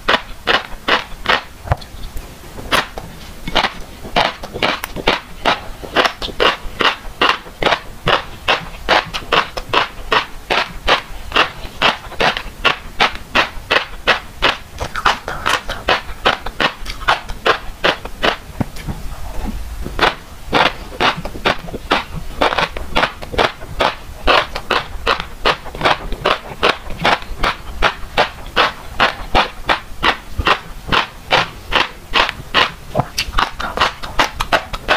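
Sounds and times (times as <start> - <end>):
fish roe popping while chewed: 2.7 - 19.0, 19.9 - 34.9.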